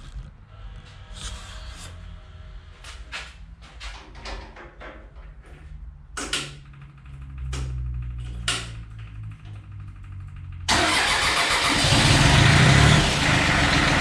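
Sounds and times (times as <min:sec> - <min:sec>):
clicks and knocks of controls: 0:02.9 - 0:10.7.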